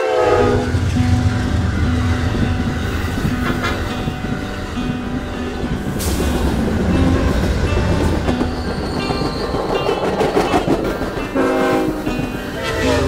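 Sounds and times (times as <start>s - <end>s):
train rumbling on rails: 0.0s - 13.0s
rapid track clatter: 0.7s - 13.0s
metal brake squeal: 8.3s - 10.7s.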